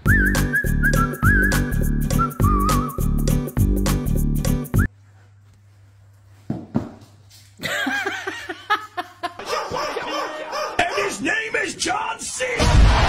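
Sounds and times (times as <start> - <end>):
dog barking: 9.4 - 11.2.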